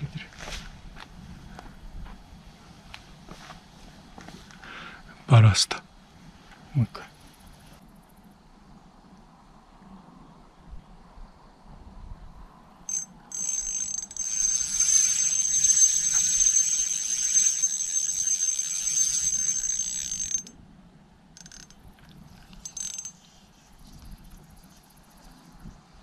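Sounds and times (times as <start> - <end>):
fishing reel gears whirring: 12.9 - 20.5, 21.4 - 21.8, 22.5 - 23.2.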